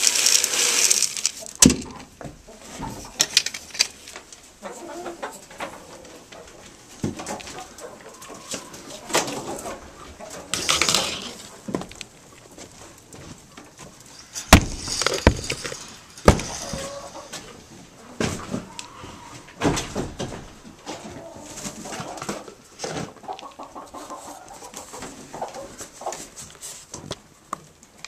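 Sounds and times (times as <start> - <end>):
hens clucking: 0.5 - 26.6
knocks and clatters: 14.5 - 16.9.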